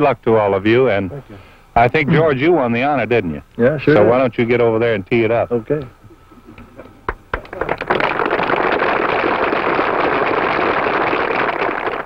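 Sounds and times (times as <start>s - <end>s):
crowd applauding: 7.3s - 12.0s.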